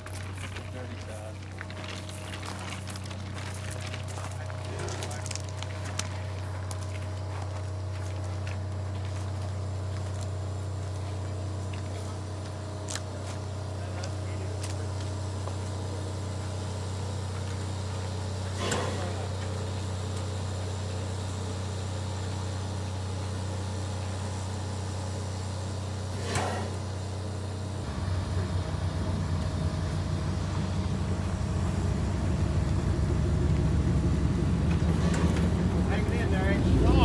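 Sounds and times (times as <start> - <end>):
steam locomotive humming: 0.0 - 37.0
rapid rumbling pulse: 26.1 - 37.0.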